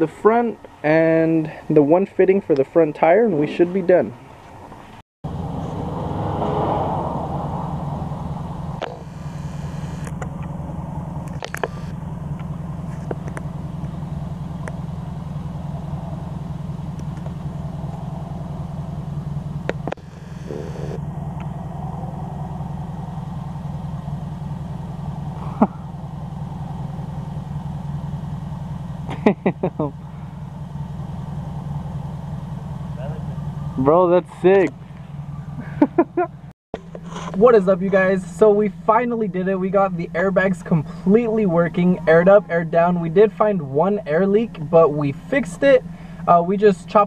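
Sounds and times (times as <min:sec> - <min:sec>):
motor humming: 0:07.6 - 0:33.8.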